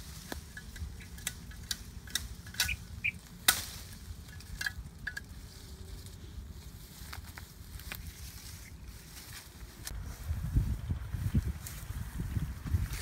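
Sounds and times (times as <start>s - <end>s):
twigs snapping and leaves rustling: 0.0s - 10.1s.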